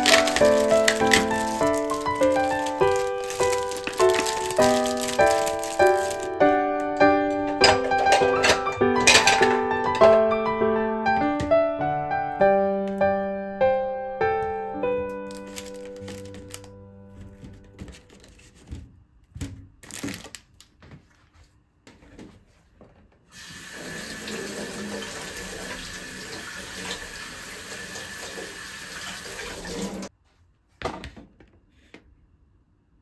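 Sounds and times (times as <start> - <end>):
kitchen tap running: 0.0 - 6.3, 23.3 - 30.1
strawberries into plastic colander: 0.0 - 6.4, 7.3 - 10.2, 15.1 - 20.9.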